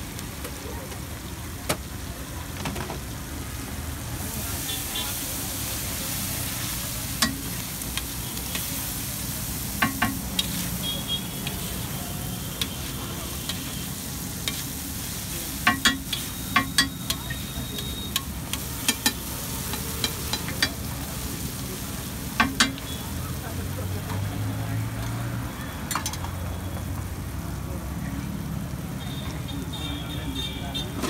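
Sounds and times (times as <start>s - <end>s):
eggs sizzling on a griddle: 0.0s - 31.0s
metal spatula striking griddle: 7.2s - 7.6s, 9.8s - 10.7s, 15.5s - 17.4s, 18.1s - 20.8s, 22.4s - 22.8s.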